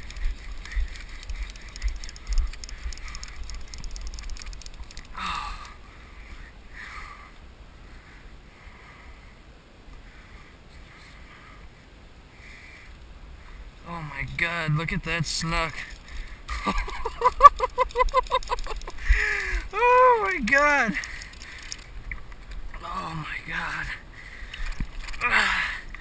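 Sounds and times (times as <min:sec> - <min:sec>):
fishing reel drag clicking: 0:00.0 - 0:05.2.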